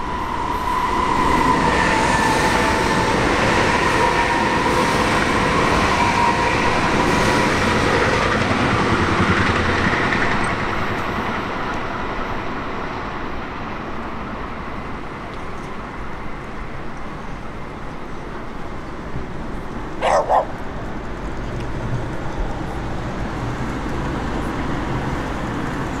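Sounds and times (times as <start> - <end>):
rail traffic rumble: 0.0 - 26.0
dog barking: 20.0 - 20.6.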